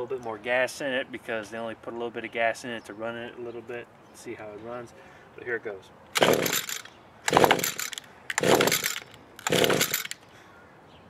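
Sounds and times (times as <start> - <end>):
recoil starter pulls: 6.2 - 10.2.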